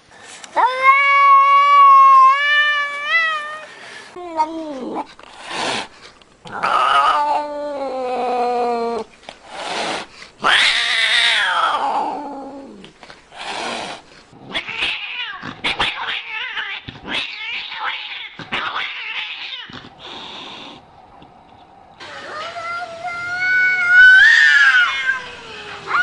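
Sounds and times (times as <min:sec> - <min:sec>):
cats yowling and meowing: 0:00.6 - 0:05.1, 0:06.5 - 0:09.1, 0:10.4 - 0:12.9, 0:14.4 - 0:19.9, 0:22.2 - 0:26.0.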